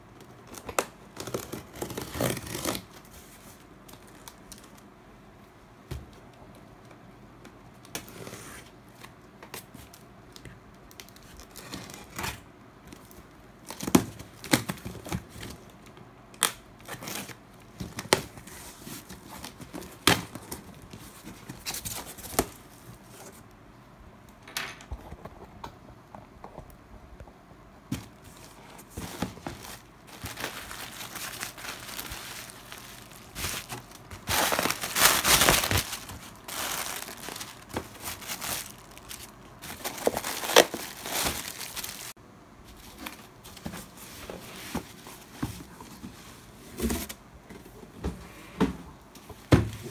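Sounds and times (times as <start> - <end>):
bubble wrap crinkling: 0.4 - 4.8, 28.0 - 42.2
packing tape tearing: 0.7 - 2.9, 29.0 - 42.1.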